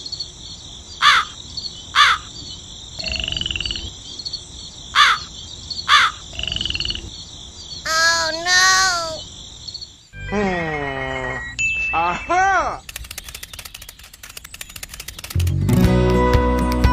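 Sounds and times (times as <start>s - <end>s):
frogs croaking: 0.0s - 15.2s
insects chirring: 0.0s - 15.5s
crows cawing: 1.0s - 1.4s, 2.0s - 2.3s, 5.0s - 5.3s, 5.9s - 6.8s, 7.9s - 9.2s
pitched call bending up and down: 7.8s - 9.3s.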